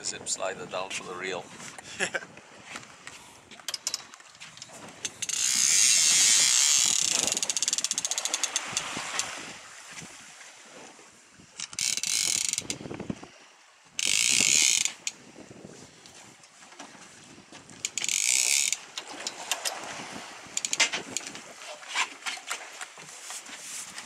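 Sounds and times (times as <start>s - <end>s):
fishing reel drag ratcheting: 3.6s - 9.3s, 11.6s - 12.8s, 14.0s - 15.2s, 17.8s - 19.8s, 20.6s - 21.4s.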